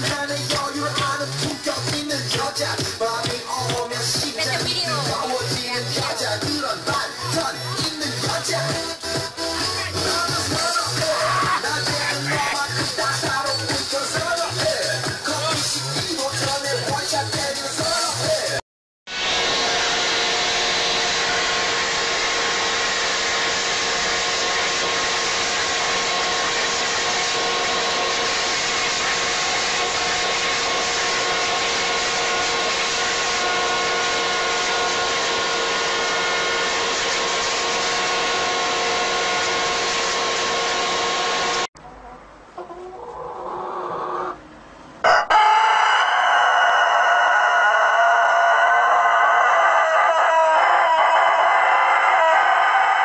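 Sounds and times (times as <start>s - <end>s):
leaf blower whining: 19.1s - 41.7s
rooster crowing: 45.0s - 53.0s.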